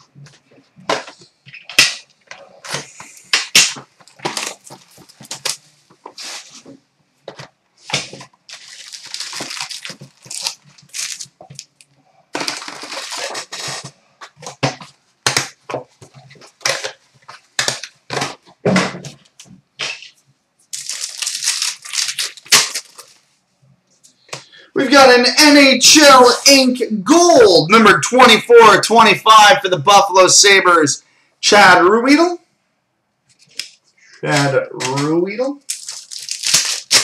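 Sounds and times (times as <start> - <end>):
plastic wrap crackling: 1.5 - 6.8, 7.9 - 14.7, 20.7 - 23.3, 34.4 - 37.0
tearing and crinkling: 8.0 - 14.6, 20.7 - 23.2, 35.7 - 37.0.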